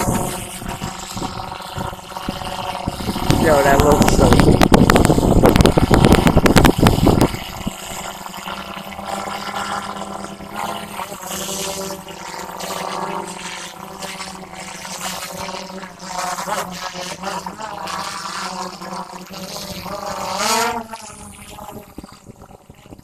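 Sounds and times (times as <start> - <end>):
drone propellers buzzing: 0.0 - 23.0.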